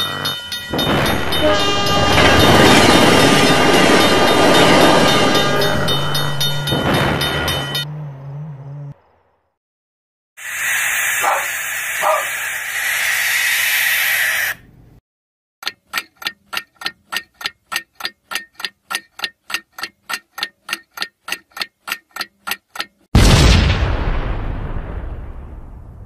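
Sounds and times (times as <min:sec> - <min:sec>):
train-like rushing sound: 0:00.7 - 0:07.8
stopwatch ticking: 0:15.6 - 0:23.1.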